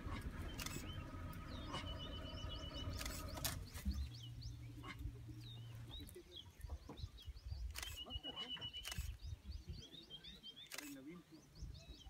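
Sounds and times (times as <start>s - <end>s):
low outdoor rumble: 0.0s - 7.9s
small birds chirping: 0.0s - 12.0s.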